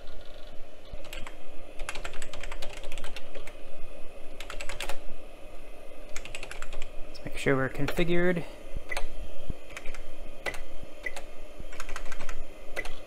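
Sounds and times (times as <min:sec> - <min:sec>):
keyboard typing: 0:00.0 - 0:03.6, 0:04.4 - 0:05.0, 0:06.1 - 0:06.9, 0:09.7 - 0:13.0
steady low hum: 0:00.0 - 0:13.0.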